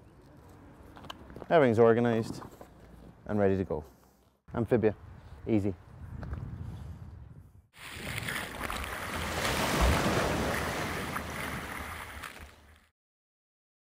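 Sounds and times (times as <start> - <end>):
rushing splashing water: 7.8 - 12.5.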